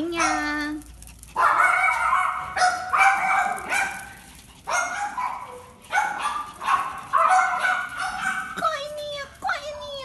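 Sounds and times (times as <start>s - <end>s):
small dog yapping: 1.3s - 8.7s.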